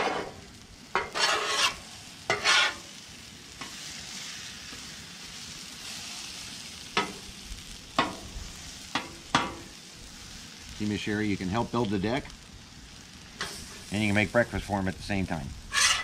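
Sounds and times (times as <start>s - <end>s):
metal utensil scraping griddle: 0.0s - 4.8s, 13.4s - 14.4s, 15.7s - 16.0s
food sizzling on a griddle: 0.0s - 16.0s.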